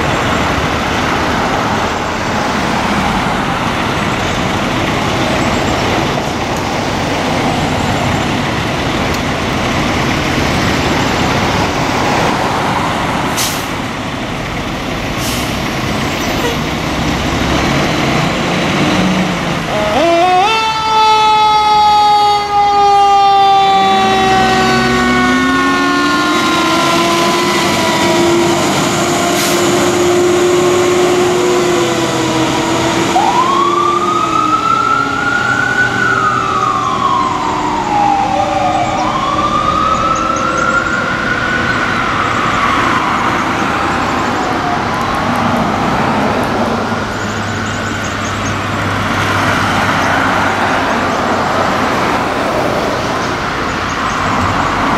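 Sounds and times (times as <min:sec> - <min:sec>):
electronic siren wailing: 0:19.7 - 0:45.4
mechanical siren falling tone: 0:19.8 - 0:43.8.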